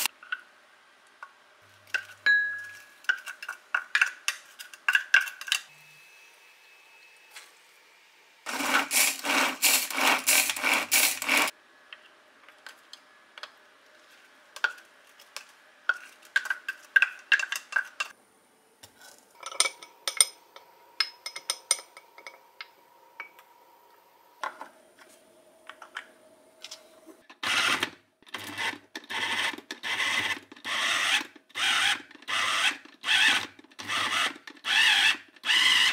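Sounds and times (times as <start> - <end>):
wooden spoon scraping plastic bowl: 8.5 - 11.5.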